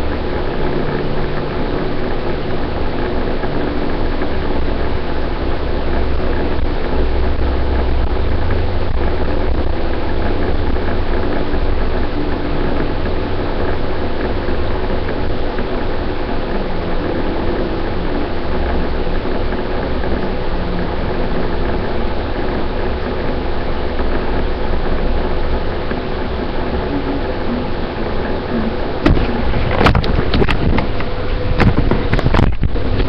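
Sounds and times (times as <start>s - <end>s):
faint hum: 0.0s - 33.0s
machine drone with low rumble: 0.0s - 33.0s
sharp knocks and clicks: 28.6s - 33.0s.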